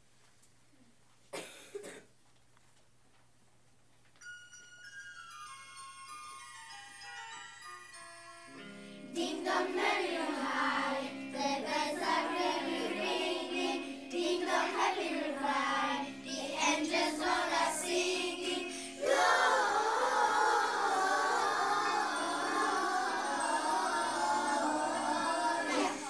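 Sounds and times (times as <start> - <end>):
instrumental accompaniment: 4.2 - 26.0
children's choir singing: 9.0 - 26.0.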